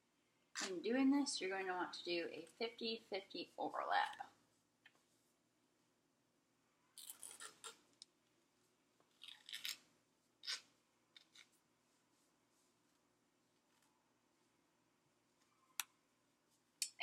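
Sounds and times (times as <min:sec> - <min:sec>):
tape being torn: 0:07.0 - 0:07.8, 0:09.2 - 0:09.8, 0:10.4 - 0:11.5.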